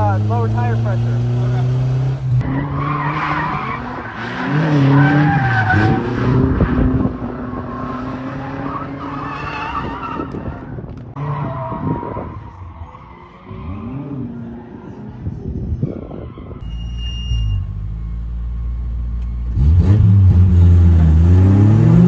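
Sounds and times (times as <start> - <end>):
car engine revving: 0.0 - 9.0, 17.6 - 22.0
tyres squealing: 16.6 - 17.8.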